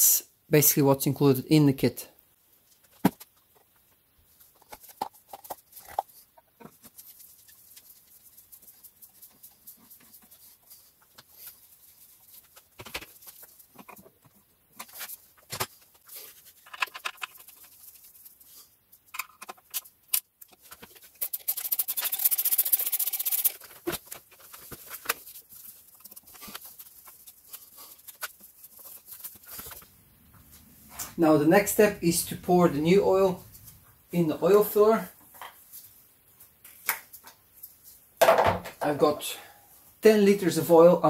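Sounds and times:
rapid clicking: 21.2s - 23.6s.

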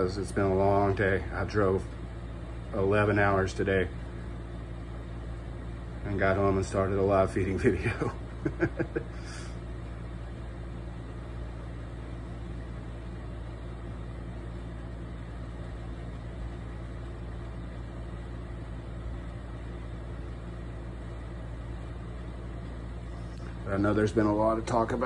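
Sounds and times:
low room hum: 0.0s - 25.0s.

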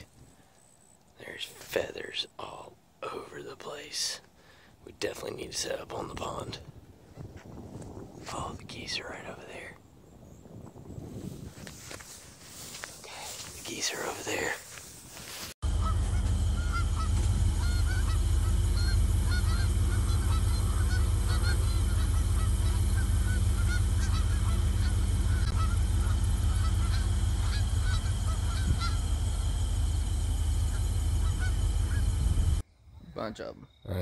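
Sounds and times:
geese honking: 15.6s - 32.6s
low rumble: 15.6s - 33.2s.

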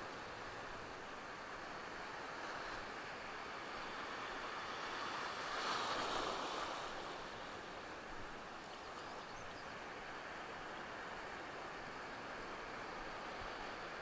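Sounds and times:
ocean surf washing in: 0.0s - 8.6s.

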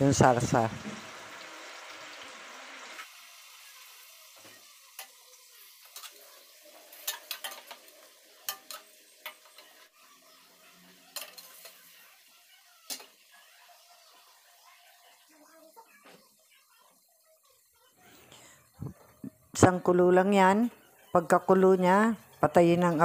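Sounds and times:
sauce sizzling: 0.0s - 23.0s
metal spoon scraping a pot: 5.8s - 9.8s, 11.0s - 12.0s.

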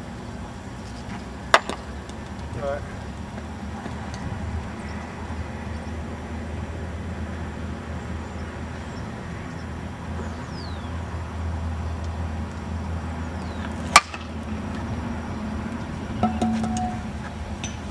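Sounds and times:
bat hitting softball: 1.5s - 1.9s, 13.9s - 14.4s, 16.2s - 17.8s.

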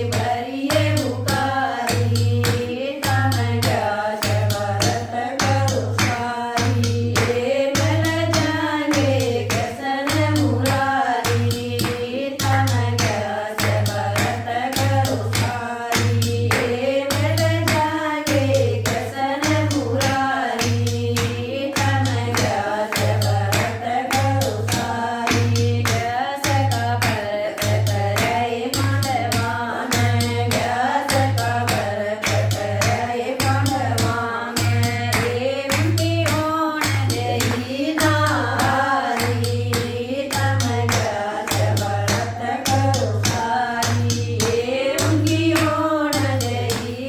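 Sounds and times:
low hand-drum beat: 0.0s - 47.0s
rhythmic hand clapping: 0.0s - 47.0s
women singing in unison: 0.0s - 47.0s.

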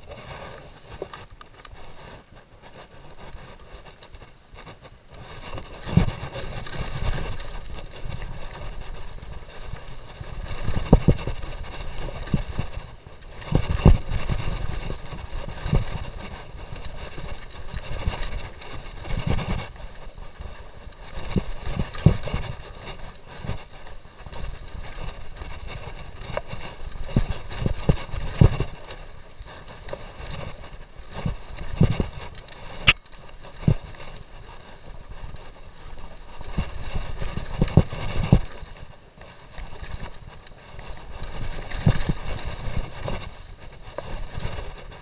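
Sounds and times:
bike tyres on dirt trail: 0.0s - 45.0s.

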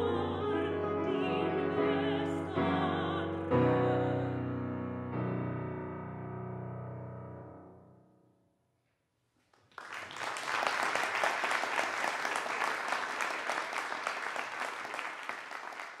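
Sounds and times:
piano notes: 0.0s - 8.1s
audience applauding: 9.6s - 16.0s.

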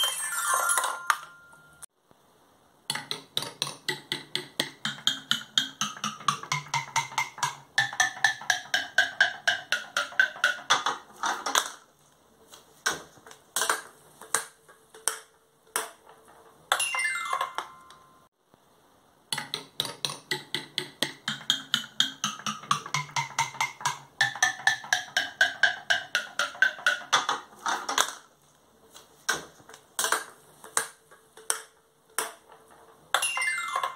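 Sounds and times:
ringing wooden notes: 0.0s - 1.9s, 3.8s - 11.0s, 16.7s - 18.3s, 20.3s - 27.4s, 33.1s - 33.9s.

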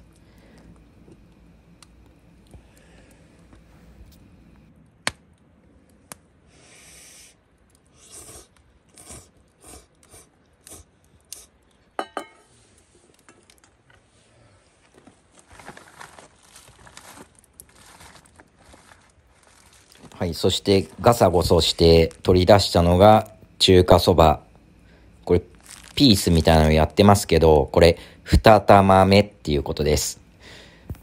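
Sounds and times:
noodle slurping: 7.9s - 11.5s
chopstick clinking on metal bowl: 12.0s - 12.4s.

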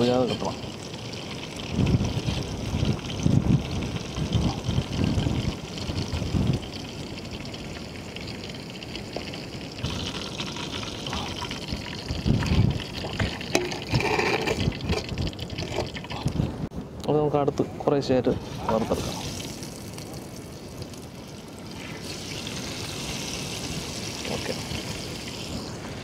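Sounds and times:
fish sizzling in hot oil: 0.0s - 16.4s, 18.4s - 26.0s
wind rumbling on microphone: 1.5s - 7.0s, 9.8s - 16.8s.

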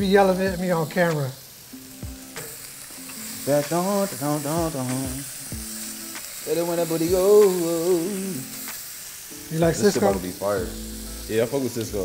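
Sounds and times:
seafood sizzling in oil: 0.0s - 12.0s
person singing: 3.3s - 5.8s, 6.4s - 8.8s.

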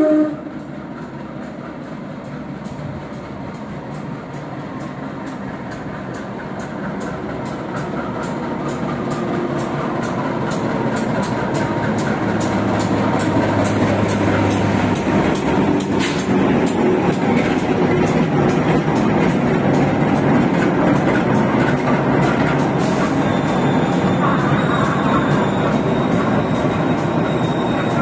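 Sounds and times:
loud pitched horn blast: 0.0s - 0.5s
diesel locomotive rumble: 0.0s - 28.0s.

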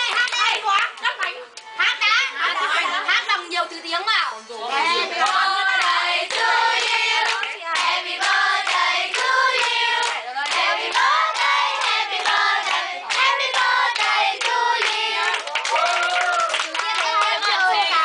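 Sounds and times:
children singing together: 4.8s - 15.3s.

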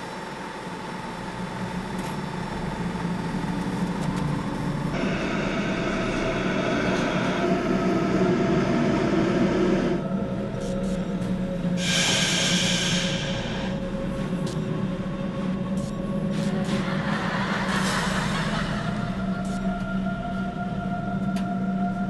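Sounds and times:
metro train rumbling: 0.0s - 22.0s
high-pitched whine: 2.7s - 22.0s.

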